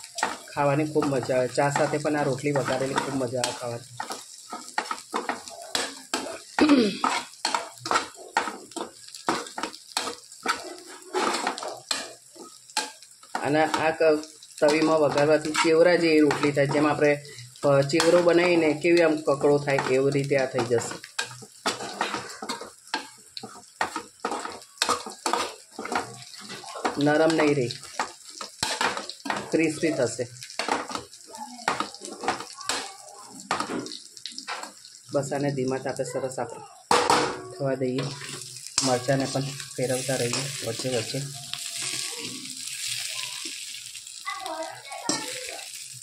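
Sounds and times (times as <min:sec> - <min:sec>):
spoon scraping and clinking pan: 0:00.0 - 0:17.0, 0:19.4 - 0:34.8
oil sizzling: 0:00.0 - 0:46.0.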